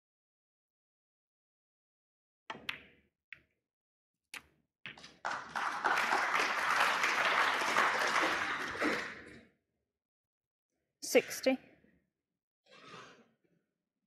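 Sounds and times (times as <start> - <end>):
audience applause: 5.2 - 9.2.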